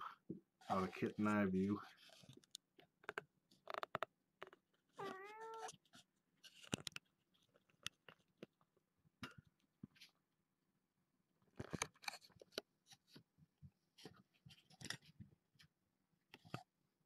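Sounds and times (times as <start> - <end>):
kitten meowing: 5.0 - 5.7.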